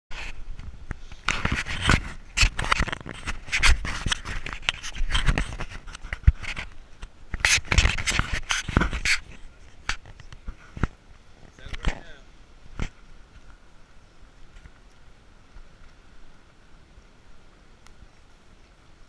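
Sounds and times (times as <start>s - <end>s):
camera handling rustling and scraping: 0.2s - 12.1s.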